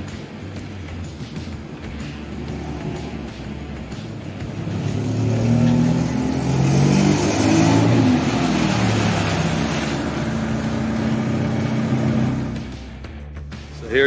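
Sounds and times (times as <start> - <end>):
car engine accelerating past: 1.9 - 13.0.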